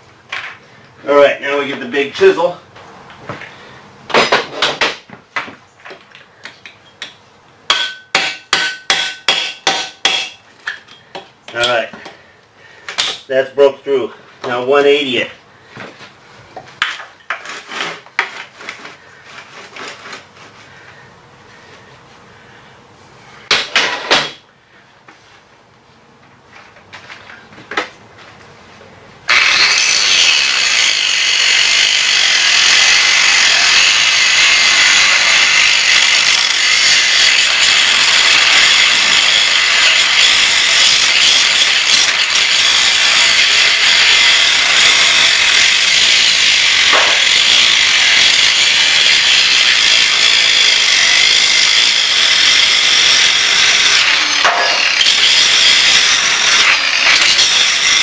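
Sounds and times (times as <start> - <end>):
angle grinder cutting steel: 29.3 - 58.0.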